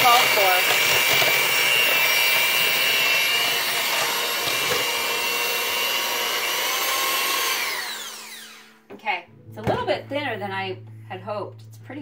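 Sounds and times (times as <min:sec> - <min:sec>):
electric hand mixer whining: 0:00.0 - 0:08.8.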